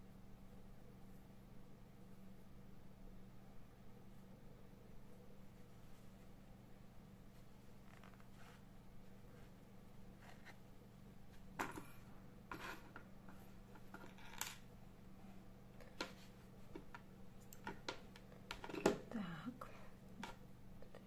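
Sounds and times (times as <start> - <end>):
steady low hum: 0.0 - 21.0
hands and tools clicking and rustling: 11.5 - 14.6, 15.8 - 19.1.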